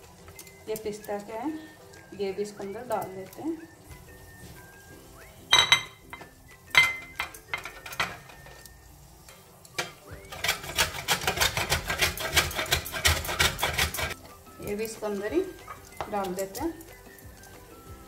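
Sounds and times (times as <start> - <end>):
grater and plate clacking on stone: 9.8 - 14.2
coconut scraping on grater: 10.3 - 14.2.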